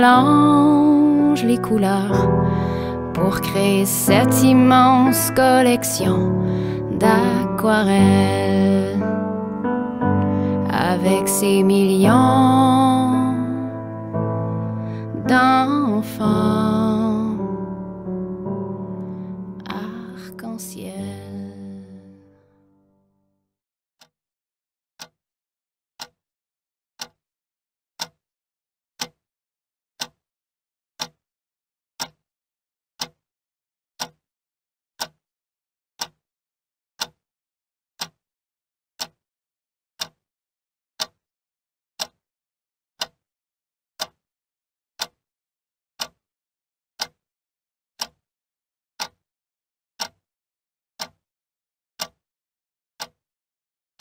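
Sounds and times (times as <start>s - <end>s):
sharp ticks: 3.1s - 8.3s.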